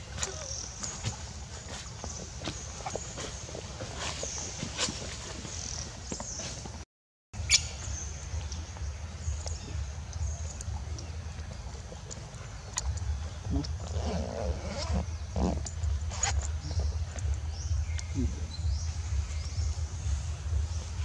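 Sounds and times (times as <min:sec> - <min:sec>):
low steady rumble: 0:07.4 - 0:21.0.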